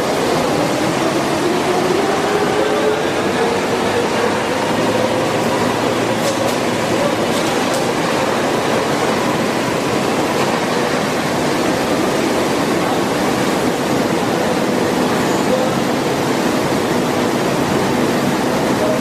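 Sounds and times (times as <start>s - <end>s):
hiss-like factory noise: 0.0s - 19.0s.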